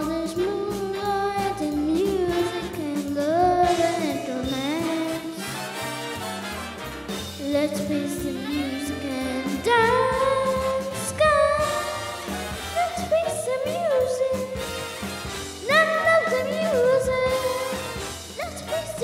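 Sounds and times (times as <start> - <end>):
boy singing: 0.0 - 5.4, 7.4 - 12.2, 12.8 - 14.6, 15.6 - 17.7, 18.4 - 19.0
instrumental accompaniment: 0.0 - 19.0.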